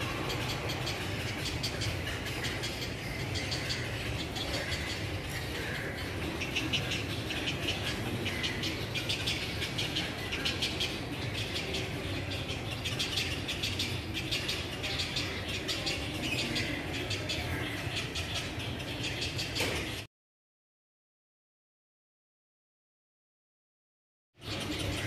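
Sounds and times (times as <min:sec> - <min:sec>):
herons squawking and clicking: 0:00.0 - 0:19.8.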